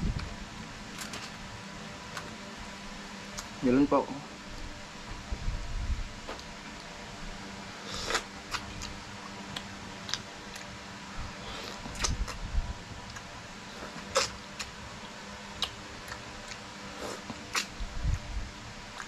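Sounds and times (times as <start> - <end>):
chewing and mouth sounds: 7.9 - 10.7, 11.4 - 12.4, 13.0 - 18.3
lip smacks: 11.7 - 12.4, 15.6 - 17.7.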